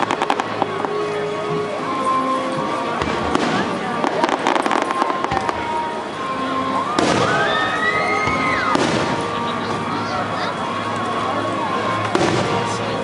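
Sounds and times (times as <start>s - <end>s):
fireworks cracking and bursting: 0.0s - 1.0s, 3.0s - 6.0s, 7.0s - 7.7s, 8.3s - 9.8s, 12.0s - 13.0s.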